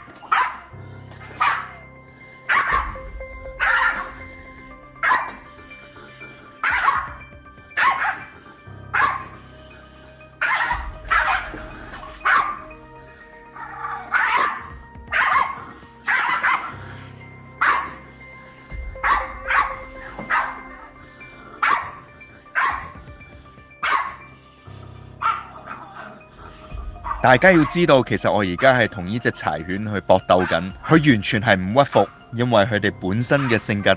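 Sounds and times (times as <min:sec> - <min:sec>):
background music with held chords: 0:00.0 - 0:33.9
dog barking aggressively: 0:00.2 - 0:01.8, 0:02.5 - 0:03.0, 0:03.6 - 0:04.2, 0:05.0 - 0:05.4, 0:06.6 - 0:07.1, 0:07.8 - 0:09.4, 0:10.4 - 0:12.7, 0:13.9 - 0:16.9, 0:17.6 - 0:18.1, 0:19.0 - 0:20.8, 0:21.4 - 0:22.0, 0:22.6 - 0:23.0, 0:23.8 - 0:24.2, 0:25.2 - 0:26.1.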